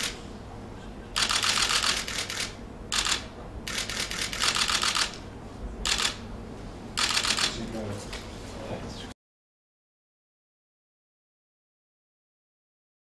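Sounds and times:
camera shutters clicking: 1.2s - 5.2s, 5.9s - 6.2s, 7.0s - 7.6s.

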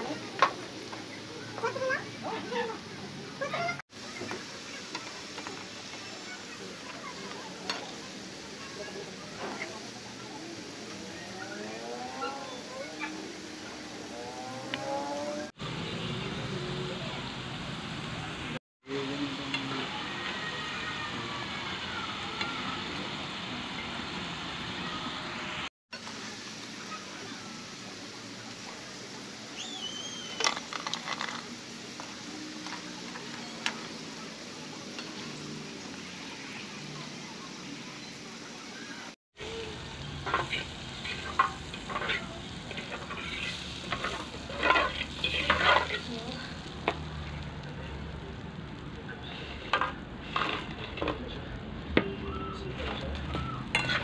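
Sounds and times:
potatoes sizzling in hot oil: 0.0s - 54.0s
fork scraping pan: 40.2s - 46.1s, 53.7s - 54.0s.

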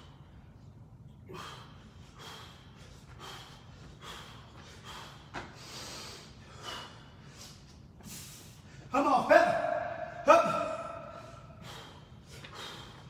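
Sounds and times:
man breathing hard: 1.2s - 8.9s, 10.1s - 13.0s.

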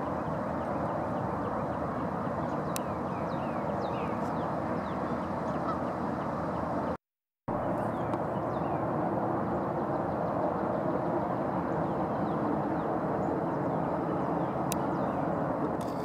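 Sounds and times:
geese honking: 5.5s - 5.9s.

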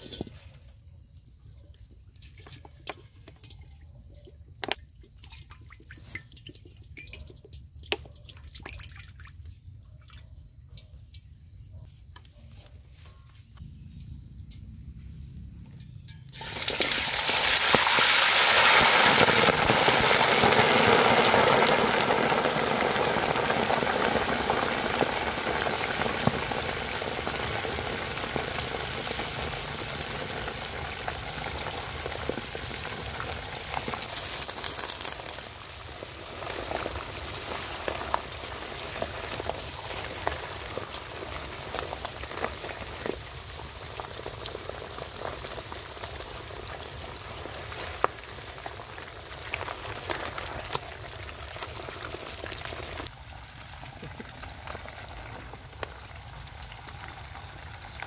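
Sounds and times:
oil pops and crackles: 4.6s - 9.6s, 16.3s - 58.0s
oil sizzling in wok: 16.0s - 58.0s.

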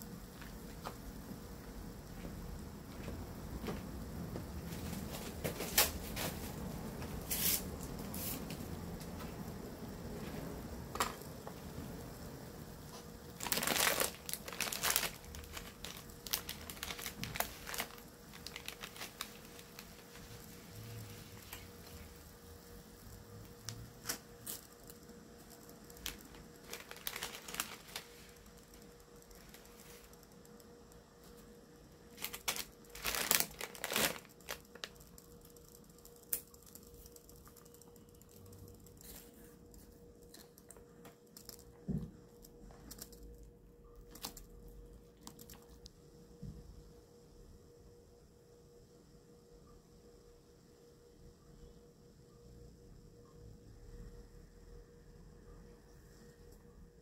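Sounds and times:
water boiling in a pot: 0.0s - 39.3s
plastic packet crinkling and tearing: 13.3s - 20.5s, 25.9s - 30.2s, 32.1s - 37.8s, 44.1s - 44.5s.

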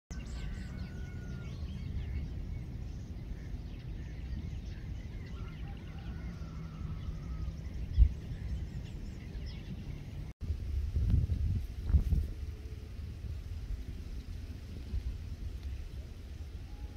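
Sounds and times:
faint birds chirping: 0.1s - 10.4s
wind rumbling on microphone: 0.1s - 16.9s.

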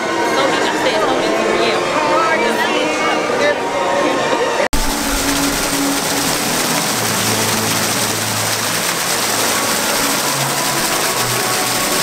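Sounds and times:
fountain water splashing into pool: 4.8s - 12.0s.

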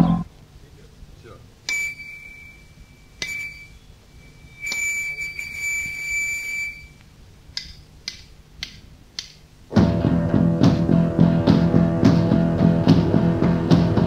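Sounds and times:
high-pitched electronic beeps: 1.7s - 7.0s
sharp clicks: 6.9s - 9.5s.

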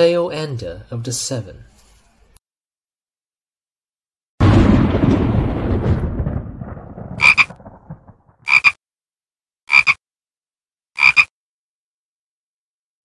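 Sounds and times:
deep boom: 4.4s - 8.4s.

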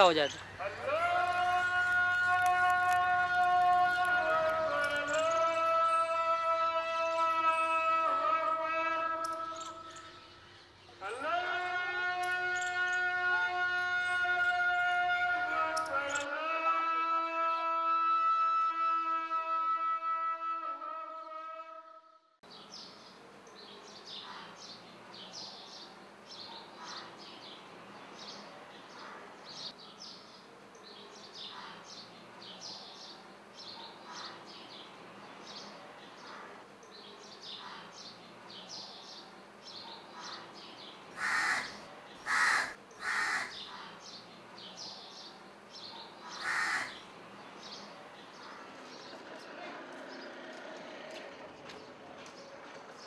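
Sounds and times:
small birds chirping: 0.0s - 6.1s, 22.5s - 50.3s
crow cawing: 41.2s - 43.6s, 46.3s - 47.0s.

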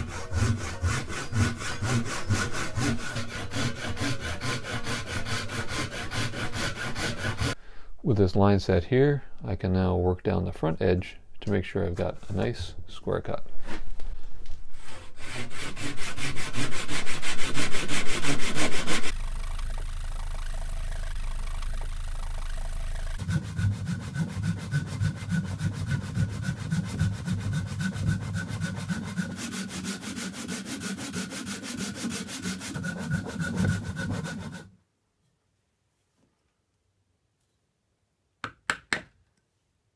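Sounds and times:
hand saw cutting wood: 0.0s - 7.6s, 14.8s - 34.7s.

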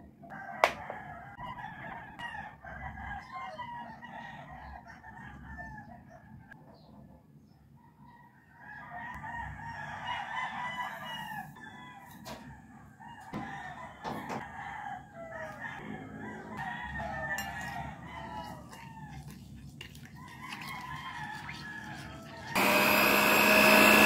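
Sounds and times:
rooster crowing: 8.2s - 12.1s, 13.1s - 19.3s.

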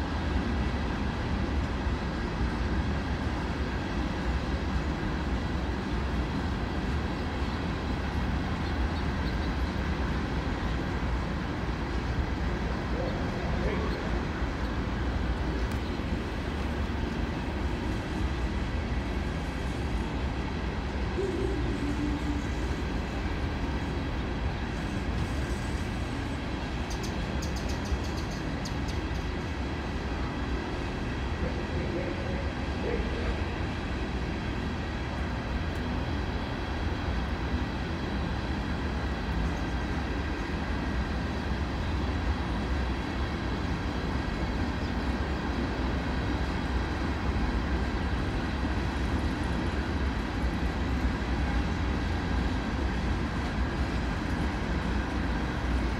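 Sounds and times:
steel wheels rumbling on rail: 0.0s - 55.9s
faint high steady tones: 21.0s - 23.5s.

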